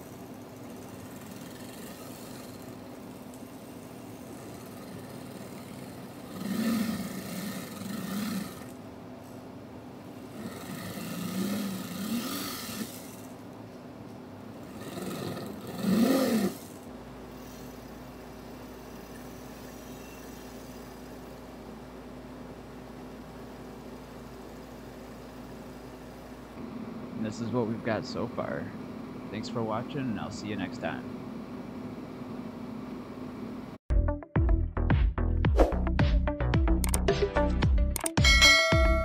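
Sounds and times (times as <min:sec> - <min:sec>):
flex shaft drill grinding metal: 0:00.0 - 0:08.8, 0:10.2 - 0:13.4, 0:14.6 - 0:21.7
steady low hum: 0:00.0 - 0:33.8.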